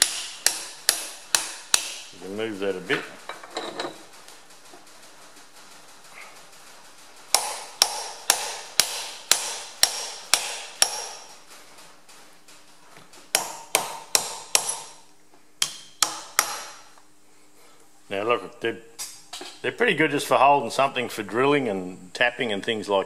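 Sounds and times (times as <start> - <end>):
hammer tapping steel: 0.0 - 2.1, 7.3 - 11.4, 13.3 - 15.0, 15.6 - 16.9.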